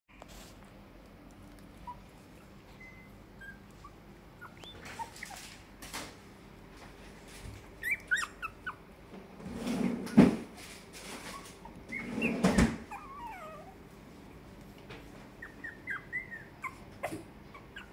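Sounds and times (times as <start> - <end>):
puppies squeaking and whimpering: 1.7 - 5.7, 7.7 - 8.9, 11.0 - 13.8, 15.4 - 17.9.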